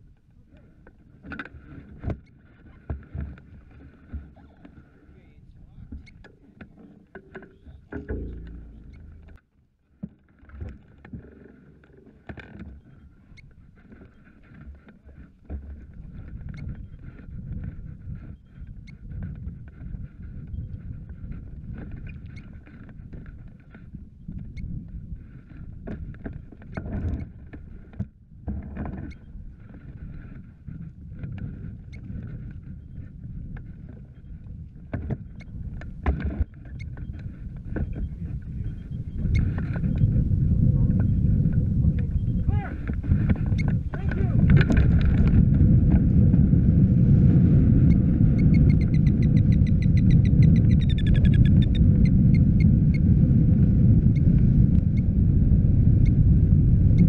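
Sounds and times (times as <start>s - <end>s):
hang glider frame rattling: 0.0s - 9.4s, 10.2s - 46.8s
wind rumble on microphone: 0.0s - 9.4s, 10.0s - 57.0s.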